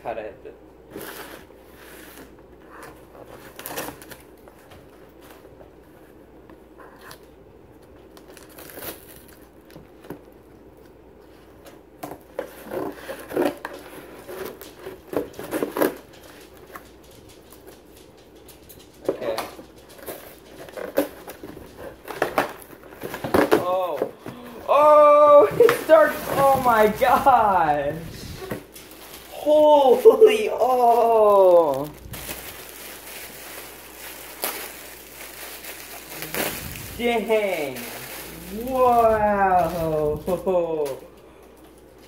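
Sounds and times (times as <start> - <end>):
crinkling: 0.9 - 24.6, 25.3 - 42.0
cardboard tearing: 28.3 - 40.4
packing tape tearing: 30.7 - 39.9.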